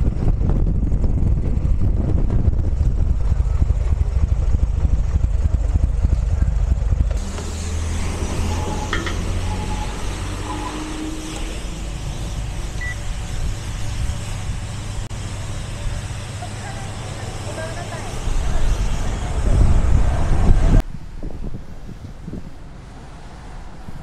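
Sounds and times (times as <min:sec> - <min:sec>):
motorcycle engine idling: 0:02.5 - 0:07.9
fuel pump dispensing fuel: 0:07.0 - 0:14.2
short high beep: 0:12.8 - 0:13.0.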